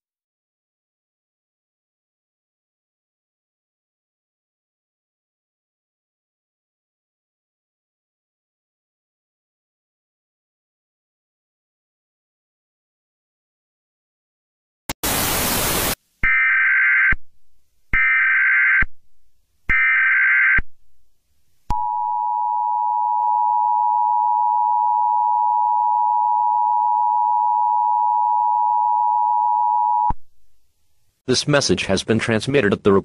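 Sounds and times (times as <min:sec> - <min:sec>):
hiss: 0:15.0 - 0:16.0
two-tone attention signal: 0:21.7 - 0:30.2.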